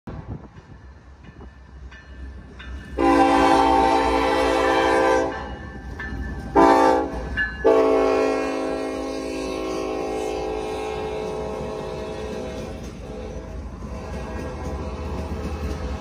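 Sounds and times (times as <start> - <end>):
diesel locomotive rumble: 0.1 - 16.0
train air horn blasts: 3.0 - 5.5, 6.5 - 15.8.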